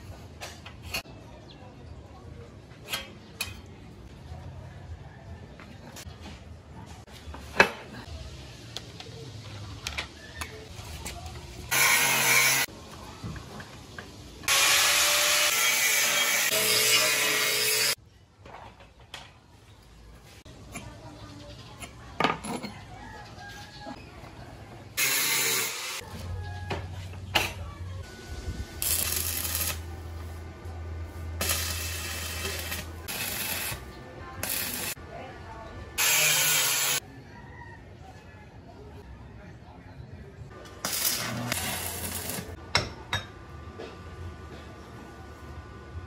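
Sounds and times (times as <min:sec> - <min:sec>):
angle grinder running: 0:11.7 - 0:12.7, 0:14.5 - 0:18.0, 0:25.0 - 0:26.0, 0:36.0 - 0:37.0
arc welding crackling hiss: 0:25.0 - 0:26.0, 0:28.8 - 0:29.8, 0:31.4 - 0:35.0, 0:36.0 - 0:37.0, 0:40.8 - 0:42.6.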